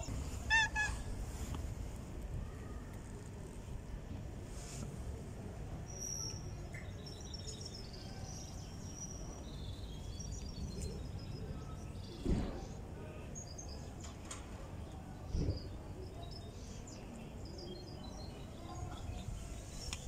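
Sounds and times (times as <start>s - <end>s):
low street rumble: 0.0s - 20.0s
small birds chirping: 0.4s - 1.0s.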